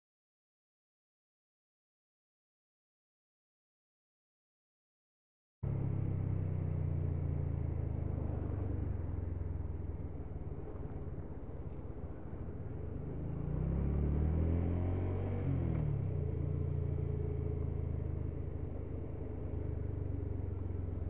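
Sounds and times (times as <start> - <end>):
motorcycle engine running: 5.6 - 21.0
road noise: 5.6 - 21.0.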